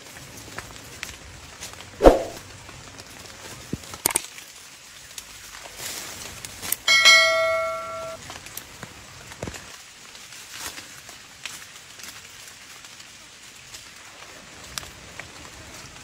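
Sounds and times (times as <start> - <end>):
sharp thump: 2.0 - 2.4
bell-like ding: 6.9 - 8.2.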